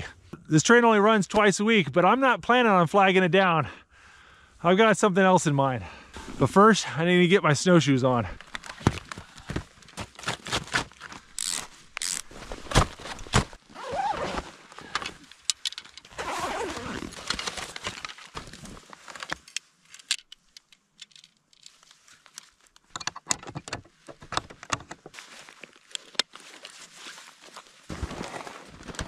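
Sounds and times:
rustling: 8.4s - 22.8s, 23.8s - 29.0s
buckles clicking and clinking: 11.1s - 12.3s, 14.7s - 26.4s.

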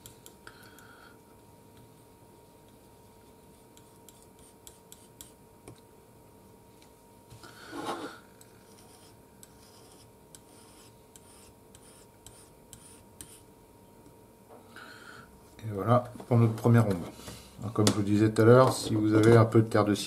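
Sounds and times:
palette knife scraping: 8.7s - 13.4s.

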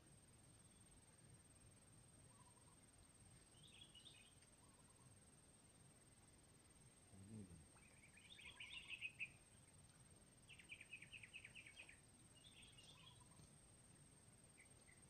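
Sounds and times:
faint bird chirping trills: 0.6s - 1.0s, 2.2s - 5.2s, 7.2s - 15.0s.

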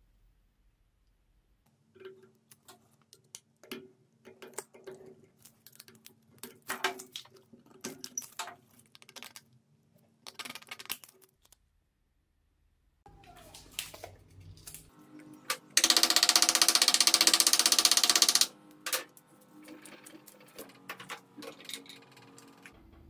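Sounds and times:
metallic clicks and scrapes: 13.8s - 22.8s.

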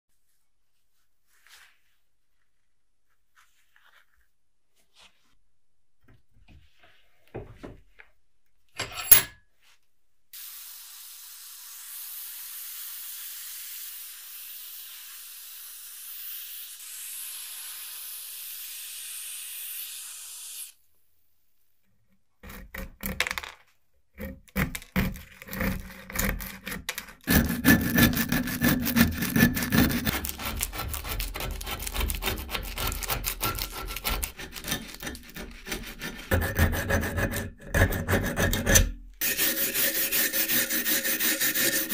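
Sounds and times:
scraping on rusty cleaver: 8.8s - 9.4s, 24.2s - 41.9s
steady hiss: 10.4s - 20.8s.

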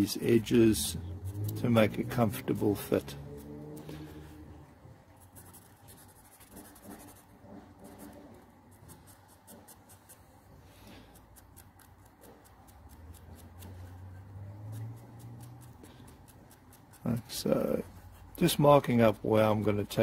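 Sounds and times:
marker pen scratching on wood: 5.0s - 20.0s.

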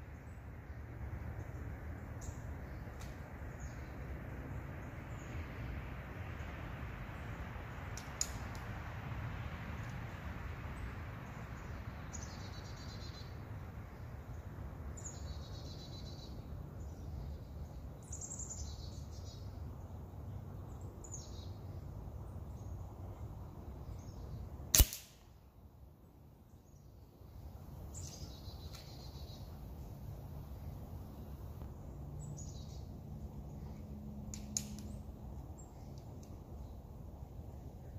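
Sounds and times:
air rifle firing crack: 24.7s - 25.2s.

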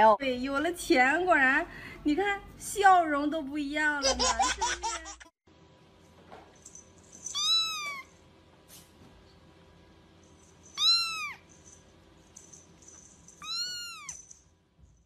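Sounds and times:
kitten mewing: 7.4s - 8.1s, 13.4s - 14.2s.

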